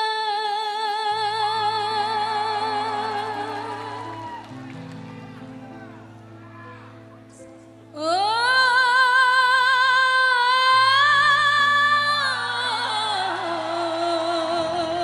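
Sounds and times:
woman singing long held notes: 0.0s - 4.4s.

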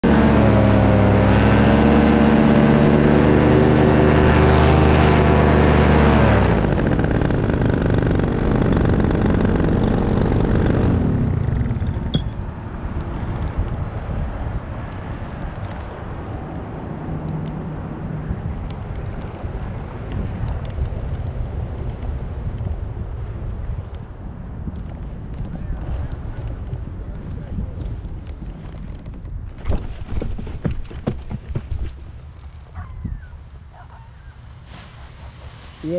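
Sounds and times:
wind noise on microphone: 0.0s - 34.0s
paramotor engine and propeller: 0.0s - 35.9s.

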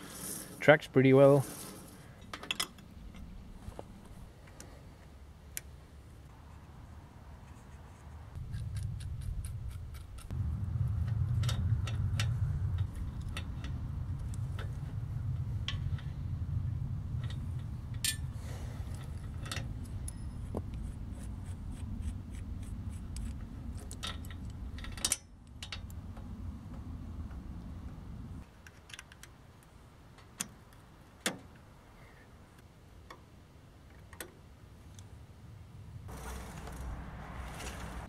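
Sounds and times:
low rumble: 8.4s - 20.8s.

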